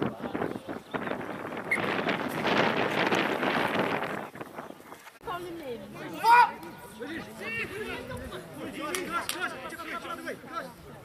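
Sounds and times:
wind buffeting microphone: 0.0s - 5.4s.

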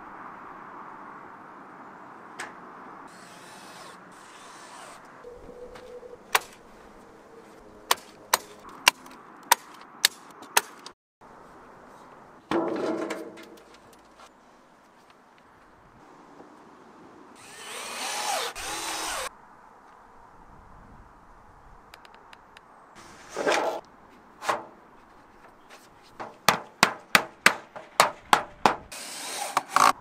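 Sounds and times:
sharp clicks on metal roof: 12.4s - 14.1s, 25.4s - 28.9s
sheet material scraping: 23.0s - 23.8s.

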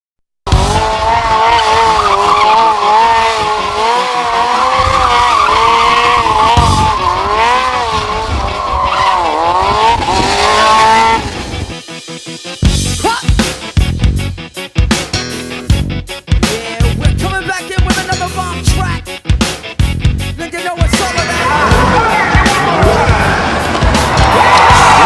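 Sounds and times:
motorcycle tyre squealing: 0.5s - 11.6s, 21.3s - 25.0s.

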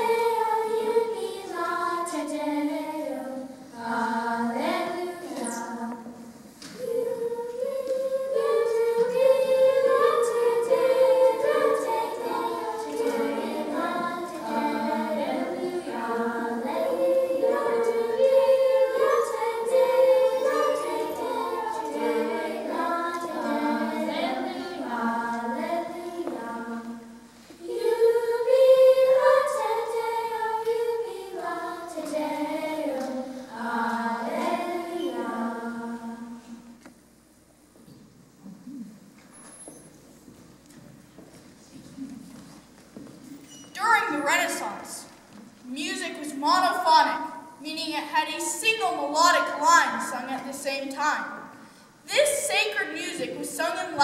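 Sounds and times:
children's choir singing: 0.0s - 36.8s, 48.4s - 54.0s.

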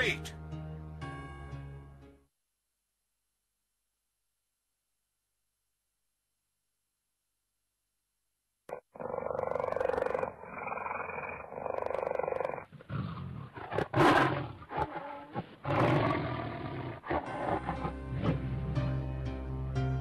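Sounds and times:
cartoon lion roaring: 8.7s - 18.4s.

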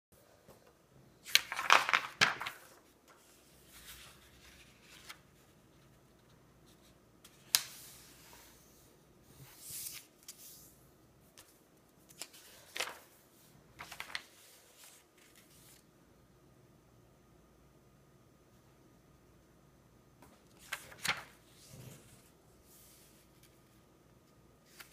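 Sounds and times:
paper rustling and sliding: 1.2s - 10.7s, 12.1s - 13.2s, 13.8s - 15.9s, 20.5s - 23.8s.

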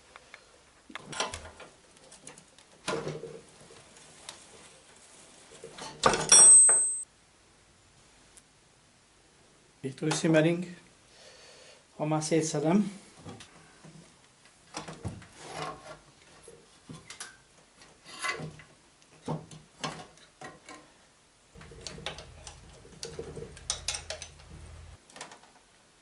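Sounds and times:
metal parts clinking and scraping: 21.6s - 24.9s.

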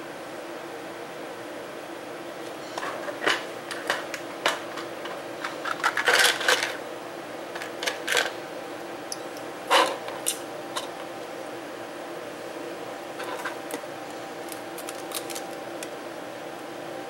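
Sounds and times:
steady low hum: 0.0s - 17.0s
plastic parts clicking and clattering: 2.8s - 6.8s, 7.5s - 8.4s, 14.5s - 15.5s
packaging rustling: 14.4s - 15.6s.

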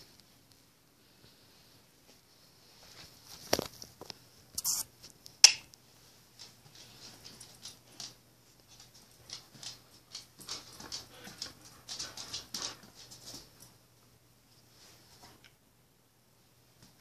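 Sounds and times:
dog claws pattering on floor: 3.3s - 13.8s.

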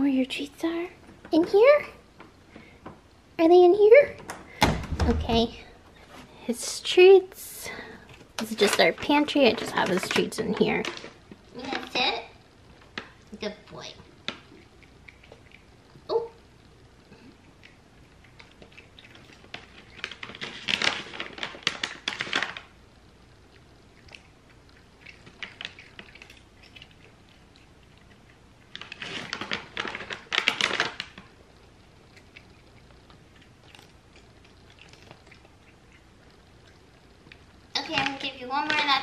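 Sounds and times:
cat crunching dry treats: 8.0s - 12.0s, 17.2s - 22.8s, 23.4s - 39.0s
plastic pouch crinkling and rattling: 8.3s - 12.1s, 19.2s - 22.7s, 28.7s - 31.4s, 37.8s - 39.0s.

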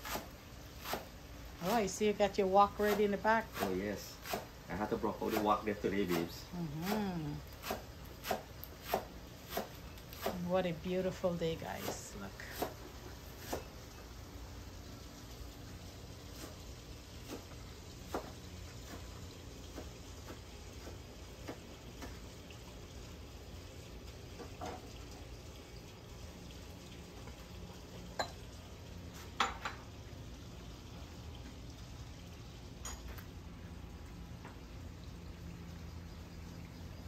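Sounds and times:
water boiling in a pot: 0.0s - 37.0s
pots and utensils clinking: 28.1s - 28.5s, 29.2s - 29.9s, 32.8s - 33.3s.

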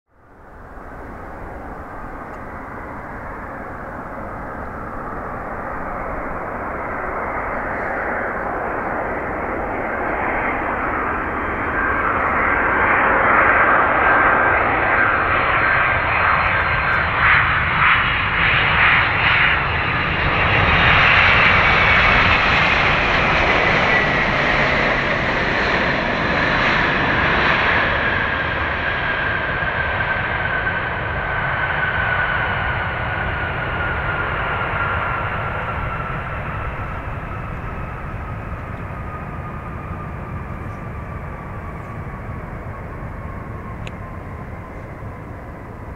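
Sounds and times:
jet engine rumble: 0.1s - 45.9s
jet engine whine: 0.1s - 45.9s.

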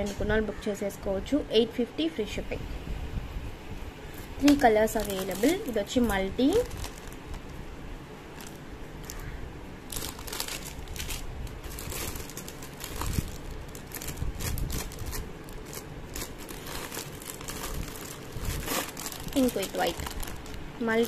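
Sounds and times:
plastic pouches crinkling: 4.2s - 7.6s, 8.3s - 21.0s.

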